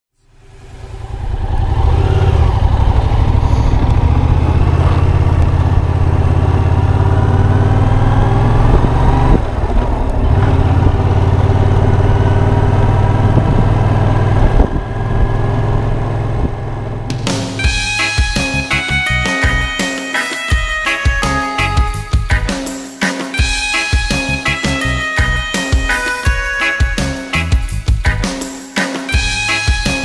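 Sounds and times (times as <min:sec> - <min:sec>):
motorcycle engine running: 0:00.2 - 0:19.8.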